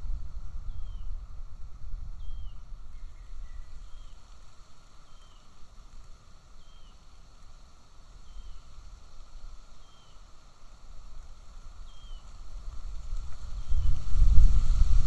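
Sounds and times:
faint low bird notes: 0.0s - 1.2s
wind buffeting microphone: 0.0s - 4.2s, 11.8s - 15.0s.

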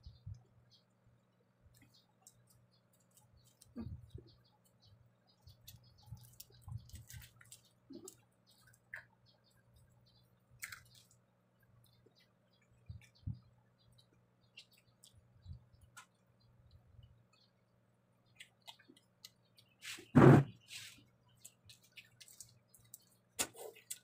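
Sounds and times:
fingers picking at food: 1.7s - 16.2s, 18.3s - 24.0s.

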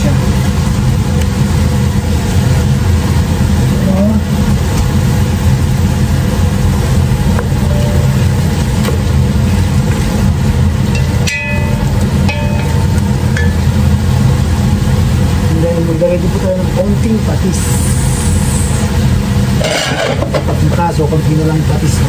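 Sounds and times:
low motor hum: 0.0s - 22.0s.

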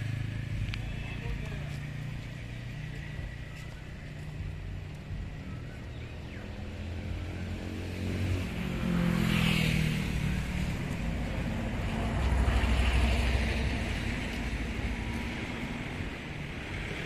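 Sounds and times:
vehicle engine rumble: 0.0s - 17.0s.

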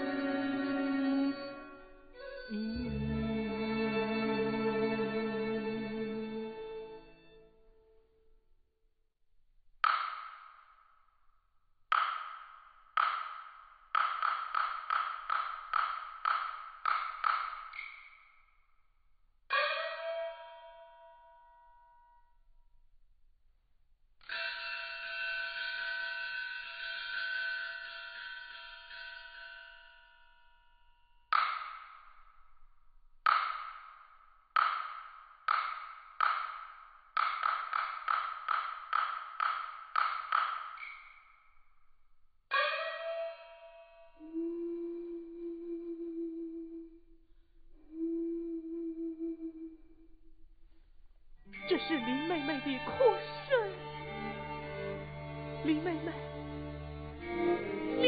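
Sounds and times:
opera percussion strikes: 2.3s - 7.4s, 11.9s - 18.3s, 31.3s - 32.2s, 33.3s - 41.2s, 51.6s - 58.0s.

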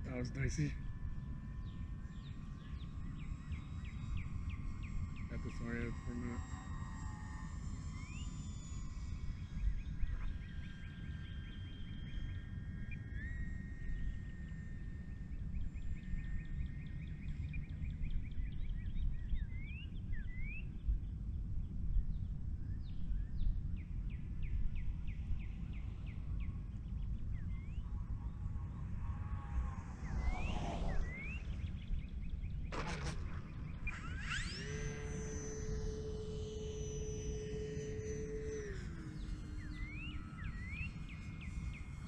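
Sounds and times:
birds chirping: 0.0s - 6.7s, 7.8s - 42.0s
low outdoor rumble: 0.0s - 10.5s, 17.8s - 42.0s
distant model airplane motor whine: 0.0s - 42.0s.

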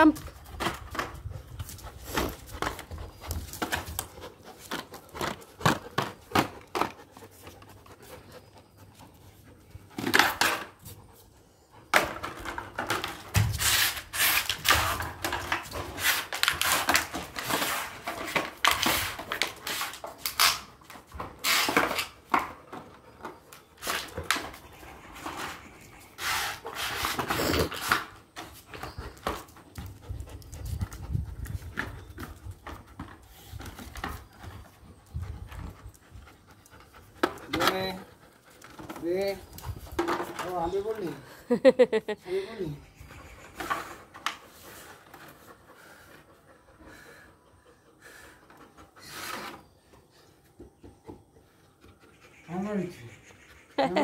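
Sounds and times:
dog panting rapidly: 0.3s - 9.9s, 28.6s - 40.0s, 42.8s - 54.0s.

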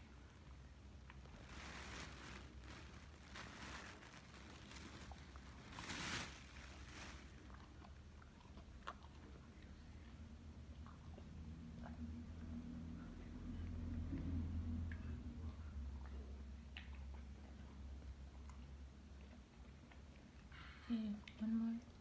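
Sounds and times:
dog chewing and licking: 7.3s - 12.9s, 13.7s - 20.6s.

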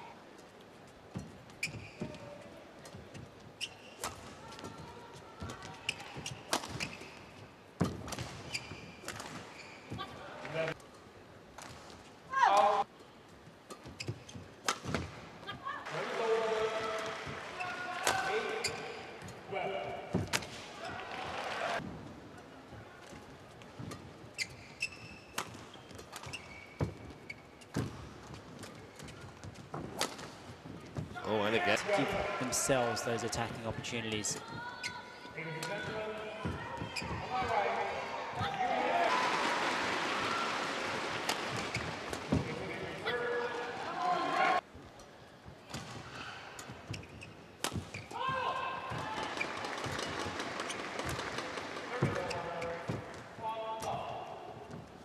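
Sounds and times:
court shoes squeaking: 0.4s - 12.6s, 13.6s - 15.8s, 16.9s - 21.1s, 23.1s - 32.0s, 33.8s - 37.6s, 41.3s - 43.3s, 45.0s - 55.0s.

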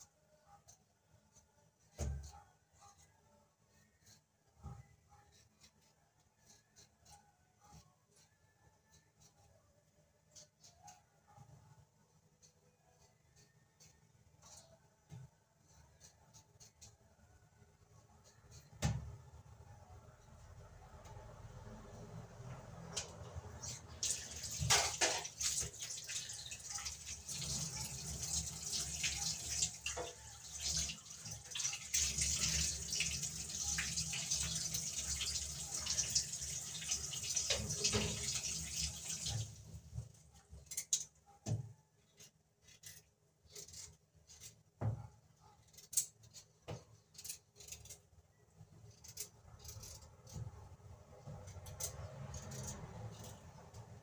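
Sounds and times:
knife peeling potatoes: 0.4s - 11.5s, 12.4s - 19.6s, 22.7s - 44.8s, 45.4s - 54.0s
tap water running into sink: 24.0s - 39.8s.

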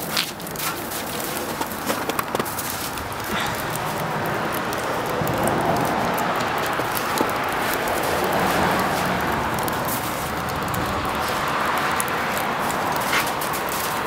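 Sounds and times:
rushing outdoor noise: 0.0s - 14.0s.

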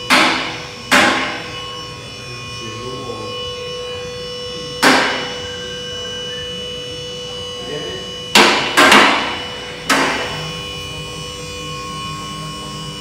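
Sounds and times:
hammer blows on metal: 0.0s - 1.5s, 4.8s - 5.5s, 8.3s - 10.5s
steady high hum: 0.0s - 13.0s.

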